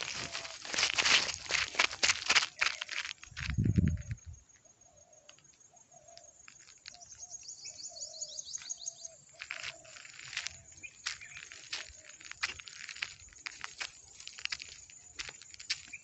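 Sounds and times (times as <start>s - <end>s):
scuffs: 0.0s - 4.1s
small bird chirping: 3.6s - 16.0s.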